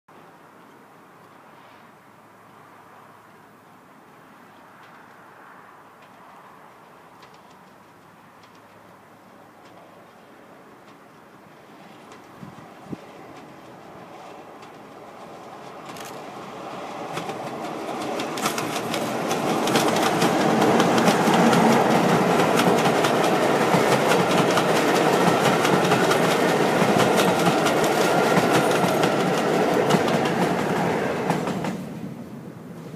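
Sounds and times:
wheels clattering over rail joints: 11.6s - 31.9s
diesel train engine: 11.6s - 32.9s.

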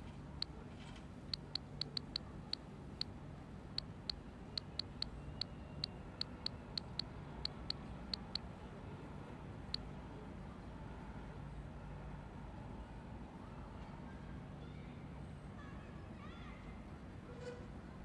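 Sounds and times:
phone keyboard key clicks: 1.4s - 2.6s, 3.8s - 5.5s, 6.2s - 8.4s.

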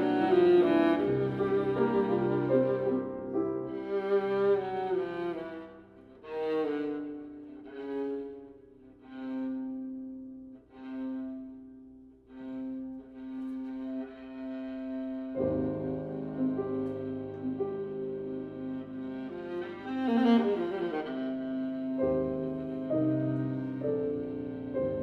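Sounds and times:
piano: 0.0s - 25.0s
viola bowed notes: 0.0s - 25.0s.

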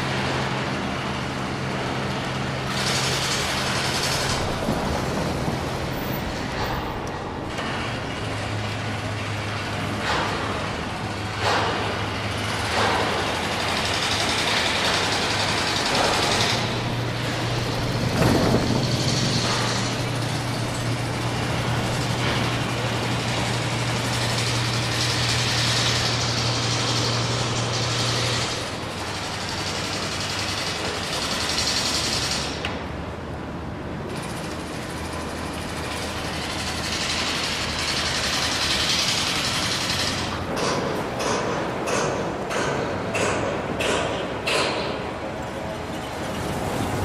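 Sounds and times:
generator humming: 13.3s - 30.4s.

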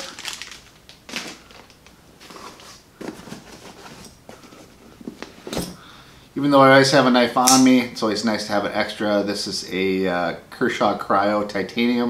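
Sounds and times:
light rustling of a bag: 1.1s - 5.9s.

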